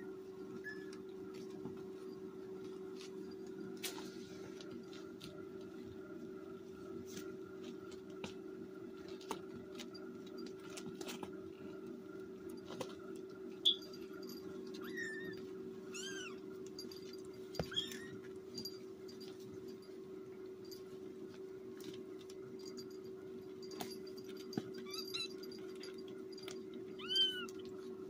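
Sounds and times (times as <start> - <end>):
steady low hum: 0.0 - 28.0
kittens mewing: 26.9 - 27.6.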